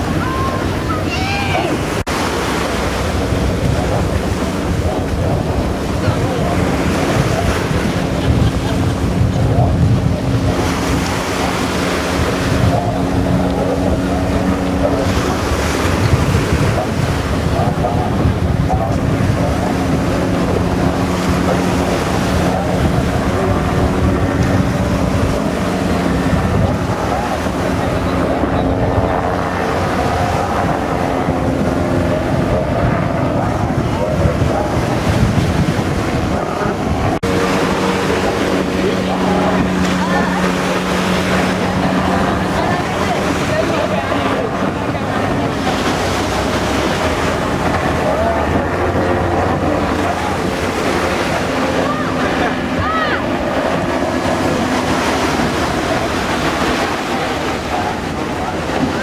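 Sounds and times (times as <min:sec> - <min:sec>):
helicopter flying low: 0:00.0 - 0:59.0
powerboat engines droning: 0:00.0 - 0:59.0
sea wash: 0:00.0 - 0:59.0
wind noise on microphone: 0:00.0 - 0:59.0.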